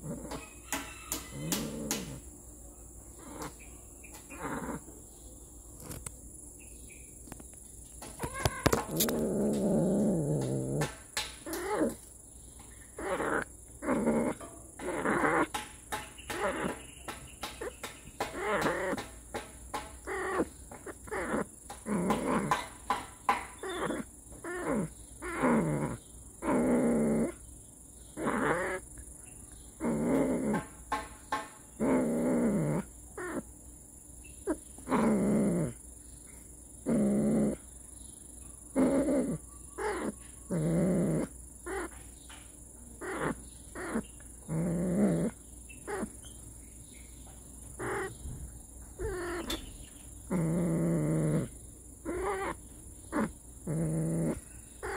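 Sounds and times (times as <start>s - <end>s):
cat growling yowls: 1.1s - 2.2s, 4.3s - 4.8s, 8.2s - 10.9s, 13.0s - 15.5s, 18.3s - 19.0s, 20.1s - 22.6s, 23.6s - 27.4s, 28.2s - 28.8s, 31.8s - 33.4s, 38.8s - 41.9s, 43.0s - 46.1s, 47.8s - 48.1s, 49.0s - 49.6s, 50.3s - 54.9s.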